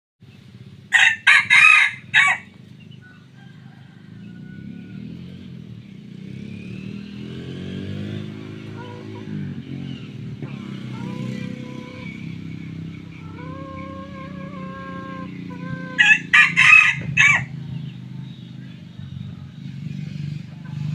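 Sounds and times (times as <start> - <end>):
rooster crowing: 0.9 - 5.5, 13.0 - 17.6.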